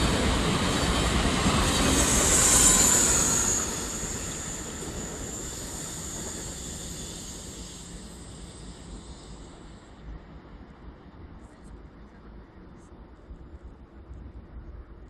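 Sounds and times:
train wheel and rail noise: 0:00.0 - 0:15.0
high-pitched wheel squeal: 0:01.6 - 0:09.4.

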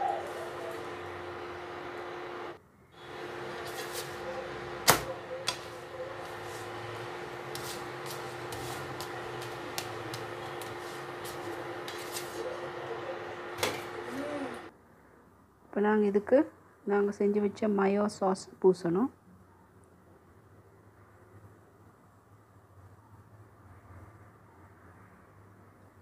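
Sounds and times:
induction cooktop humming: 0:00.0 - 0:14.7
spatula scraping a pan: 0:05.5 - 0:12.7.

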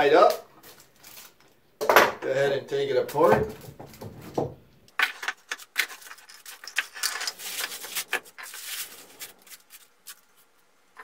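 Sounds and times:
plastic bag crinkling: 0:05.0 - 0:10.6.

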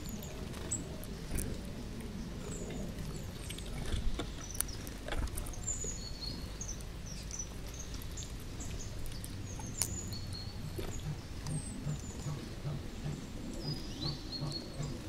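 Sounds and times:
small birds chirping: 0:00.0 - 0:15.0
squirrel nibbling at feeder: 0:02.6 - 0:12.8.

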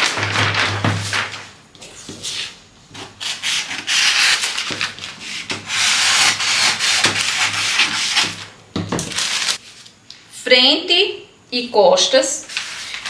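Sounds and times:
paper rustling: 0:00.0 - 0:10.0, 0:12.4 - 0:13.0
scissors cutting paper: 0:03.0 - 0:08.4.

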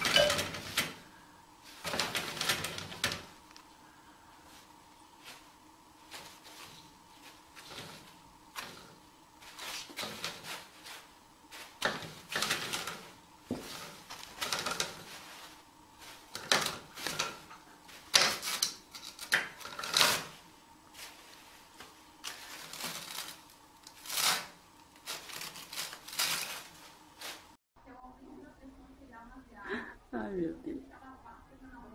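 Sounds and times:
toilet paper rustling: 0:00.0 - 0:27.6.

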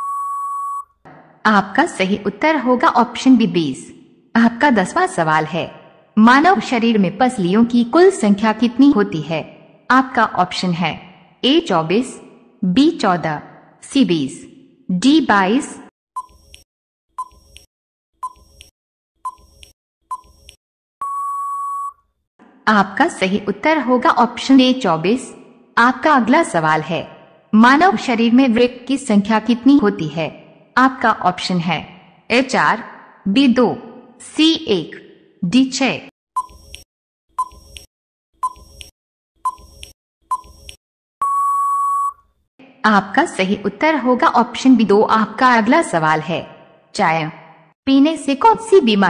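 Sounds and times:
long beep: 0:00.0 - 0:00.9, 0:21.0 - 0:22.0, 0:41.2 - 0:42.2
short electronic beeps with clicks: 0:00.0 - 0:00.9.

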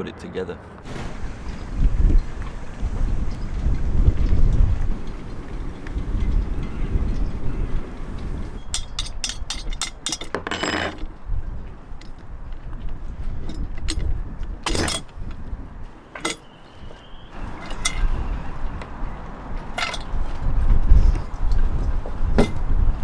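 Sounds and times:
metal tools clicking and clinking: 0:08.6 - 0:11.1, 0:14.7 - 0:15.1, 0:16.2 - 0:16.5, 0:17.6 - 0:18.1, 0:19.7 - 0:20.2.

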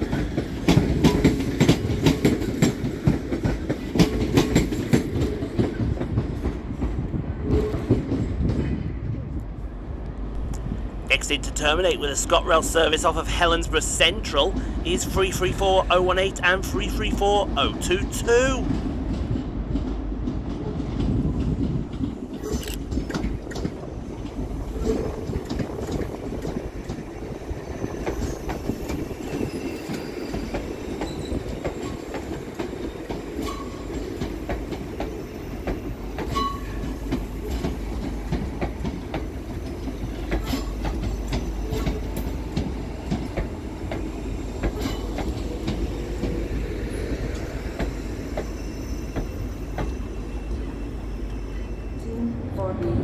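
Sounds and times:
wheels clicking over rail joints: 0:00.0 - 0:08.6, 0:27.9 - 0:50.0
train wheels rumbling: 0:00.0 - 0:53.0
wheel squeals: 0:47.8 - 0:52.1.

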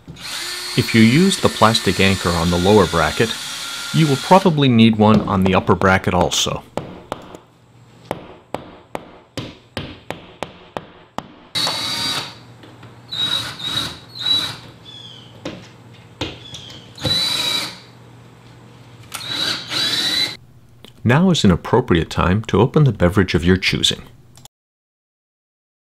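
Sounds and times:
drill driving a screw: 0:00.1 - 0:04.5, 0:11.6 - 0:12.5, 0:13.1 - 0:14.7, 0:17.0 - 0:17.9, 0:19.1 - 0:20.4.

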